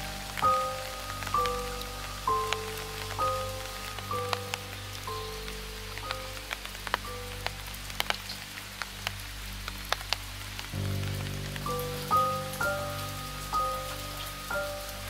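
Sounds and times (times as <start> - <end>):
rain drops ticking: 0.0 - 15.0
soft music of held notes: 0.0 - 15.0.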